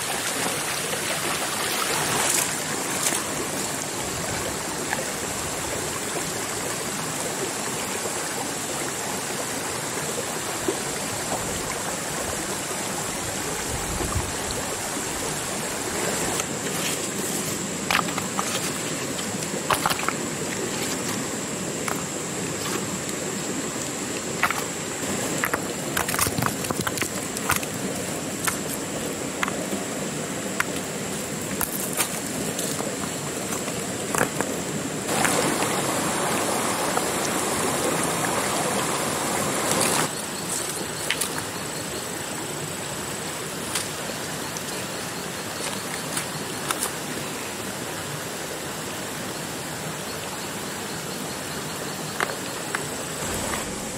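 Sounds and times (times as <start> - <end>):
flowing stream water: 0.0 - 53.9.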